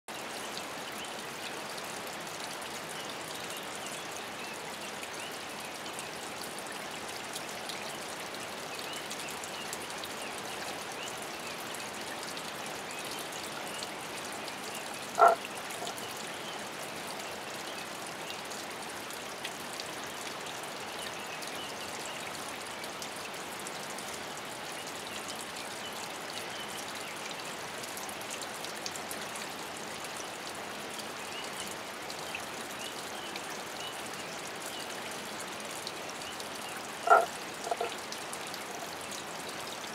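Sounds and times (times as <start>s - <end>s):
water trickling and dripping: 0.1s - 39.9s
toad croak: 15.1s - 16.0s, 37.0s - 38.0s.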